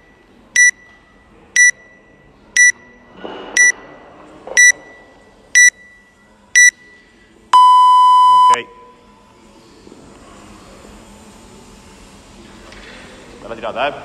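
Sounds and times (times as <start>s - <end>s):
timer short high beeps: 0.6s - 0.9s, 1.6s - 2.0s, 2.6s - 2.9s, 4.6s - 5.0s, 5.6s - 6.0s, 6.6s - 6.8s, 7.6s - 8.8s.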